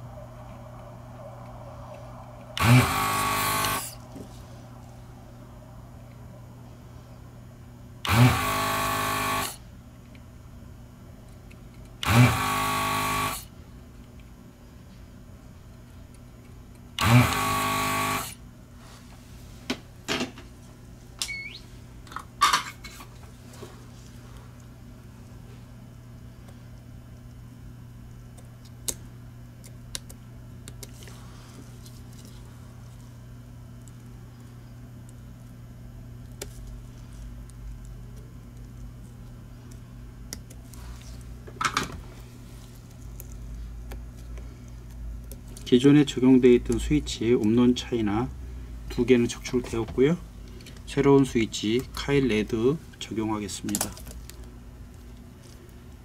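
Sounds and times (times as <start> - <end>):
desoldering vacuum pump whirring: 0.0 - 14.4, 15.2 - 18.8
low electrical hum: 0.0 - 56.0.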